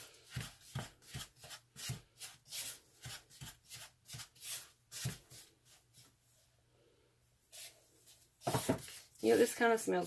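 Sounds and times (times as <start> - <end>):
spatula scraping salt in plastic cup: 0.1 - 5.5.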